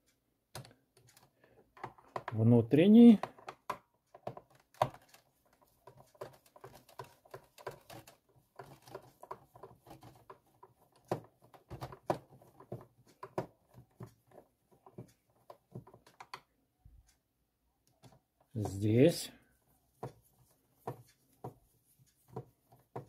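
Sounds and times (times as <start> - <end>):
hands handling plastic: 3.1 - 16.4.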